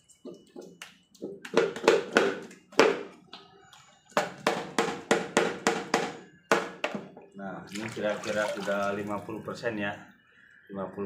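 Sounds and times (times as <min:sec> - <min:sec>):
wet scrubbing strokes: 0:07.7 - 0:09.2.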